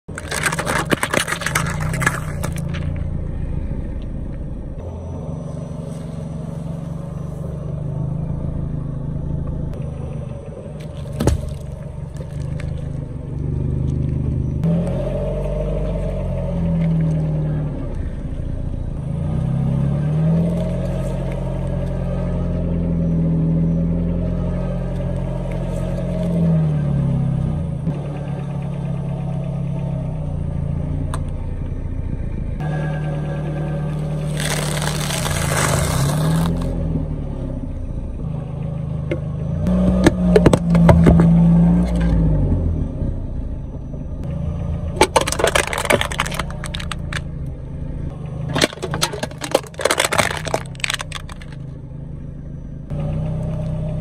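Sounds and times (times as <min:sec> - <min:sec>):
car engine running: 0:00.0 - 0:54.0
objects crushed under tyre: 0:00.1 - 0:03.0, 0:10.9 - 0:13.0, 0:34.3 - 0:36.7, 0:39.7 - 0:41.4, 0:44.9 - 0:47.3, 0:48.5 - 0:51.7
sharp crack: 0:45.0 - 0:47.5, 0:48.5 - 0:51.7.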